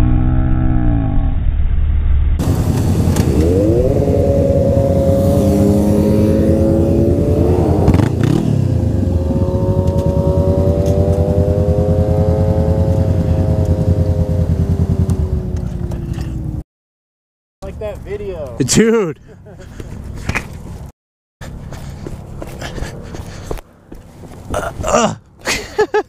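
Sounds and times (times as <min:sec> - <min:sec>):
motorcycle engine accelerating: 0:02.4 - 0:16.6.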